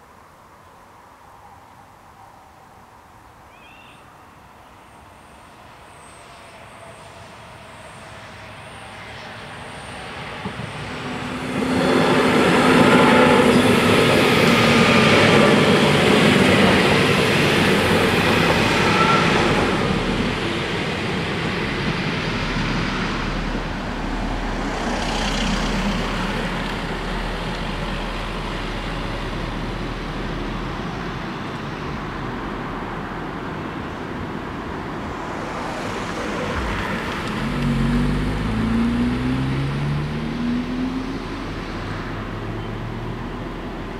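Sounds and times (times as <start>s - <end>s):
road traffic noise: 0.0s - 43.9s
diesel railcar passing: 0.9s - 43.9s
vehicle accelerating through gears: 35.1s - 43.7s.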